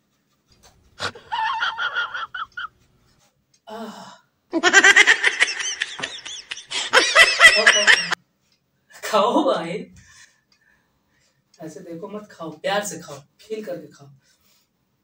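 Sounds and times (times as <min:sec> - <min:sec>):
woman laughing: 0:01.0 - 0:02.7, 0:04.5 - 0:08.2.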